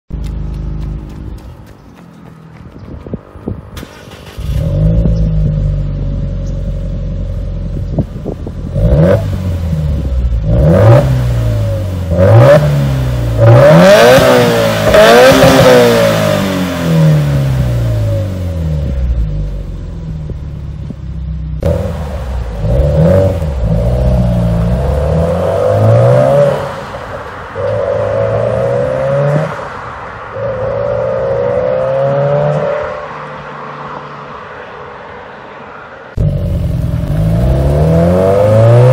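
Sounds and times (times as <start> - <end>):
car engine starting and idling: 3.6 - 31.6, 36.1 - 38.9
car engine revving: 8.5 - 20.8, 21.5 - 34.8, 36.1 - 38.9
car accelerating hard: 10.4 - 18.7, 21.6 - 27.0, 36.2 - 38.9.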